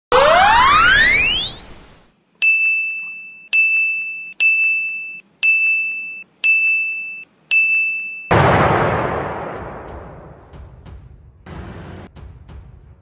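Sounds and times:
rising sweep tone: 0.1 - 2.0.

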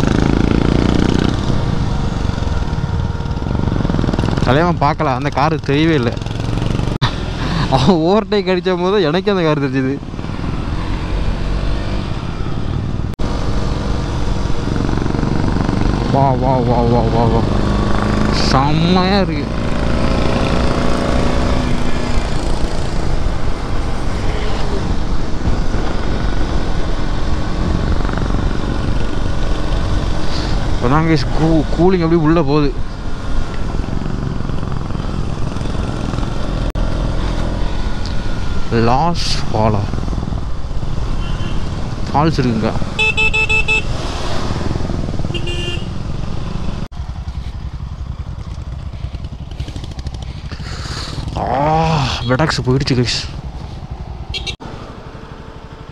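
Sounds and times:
motorcycle engine running: 0.0 - 55.9
vehicle horn toot: 41.2 - 41.8, 43.0 - 43.9, 45.3 - 45.9, 54.3 - 54.6.

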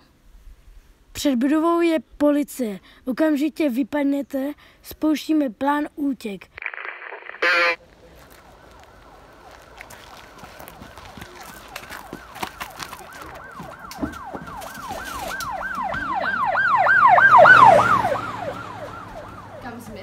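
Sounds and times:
police siren yelping: 7.4 - 7.8, 10.9 - 19.8.

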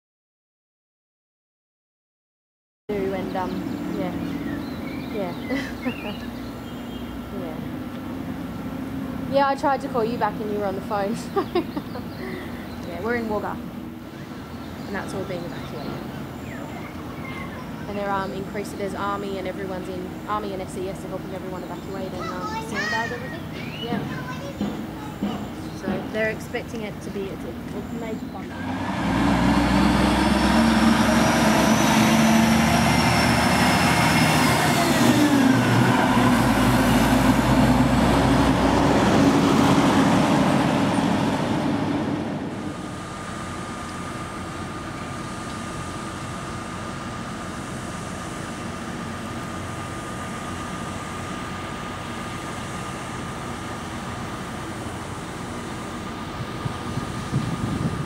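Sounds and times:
truck engine droning past: 2.9 - 58.0
steady low rumble: 35.2 - 58.0.

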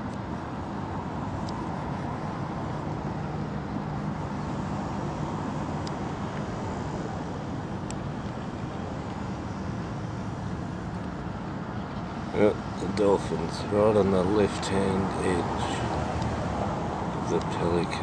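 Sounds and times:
car engines and road traffic: 0.0 - 18.0.

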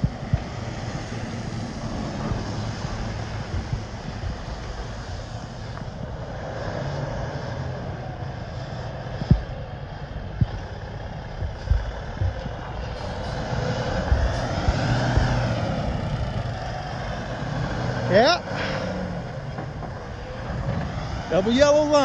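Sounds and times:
diesel truck engine running: 0.0 - 22.0
tyre noise on wet road: 0.0 - 22.0
low thumps: 1.8 - 5.9, 10.3 - 17.0.

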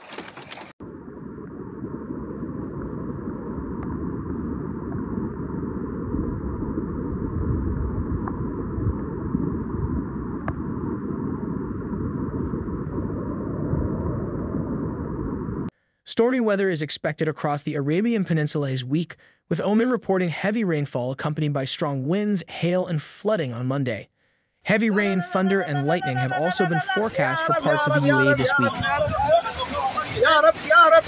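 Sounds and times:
floodwater rushing: 24.7 - 31.0.

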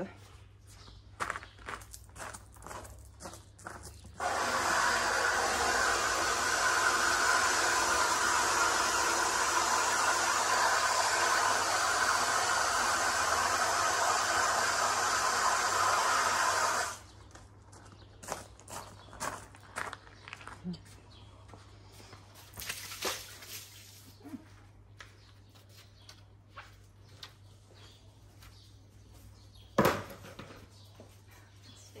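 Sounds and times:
garden hose spraying water: 4.2 - 17.1, 22.4 - 24.3.

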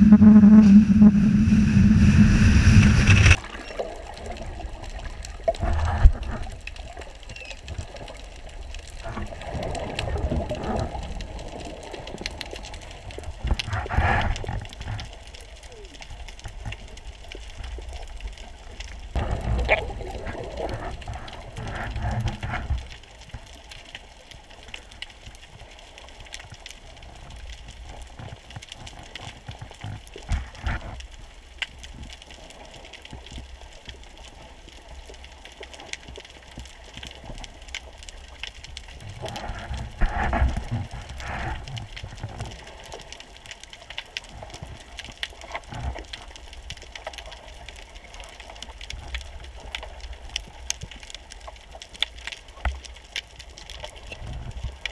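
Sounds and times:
underwater hiss: 0.0 - 3.4
water rushing past: 0.0 - 3.8.

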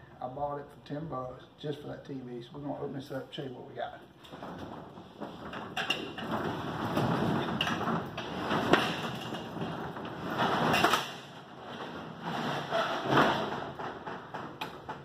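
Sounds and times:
metal roll-up door rattling: 4.2 - 15.0.

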